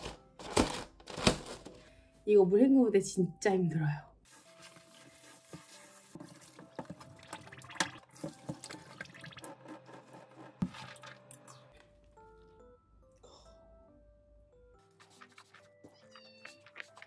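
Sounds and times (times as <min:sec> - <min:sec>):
water splashing in a sink: 0:04.9 - 0:11.7.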